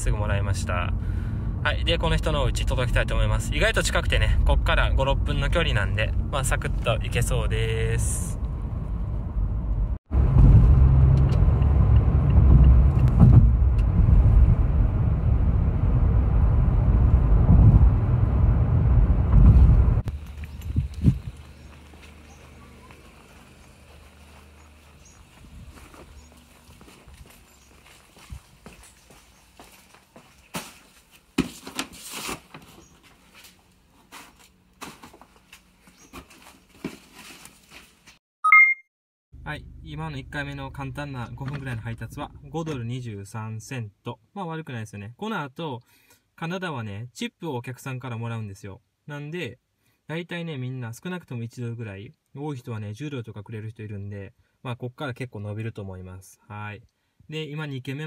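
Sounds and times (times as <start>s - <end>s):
car cabin road and engine rumble: 0.0s - 27.2s
footsteps on concrete: 20.1s - 38.2s.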